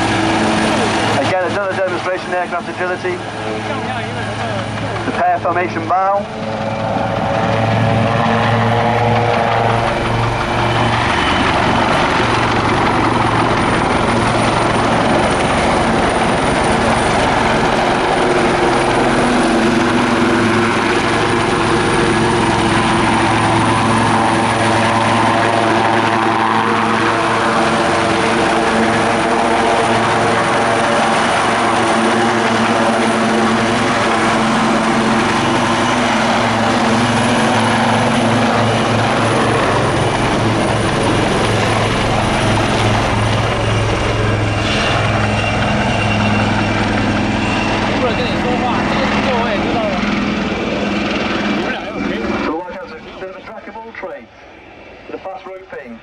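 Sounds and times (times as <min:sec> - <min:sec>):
helicopter rotor and engine: 0:00.0 - 0:56.0.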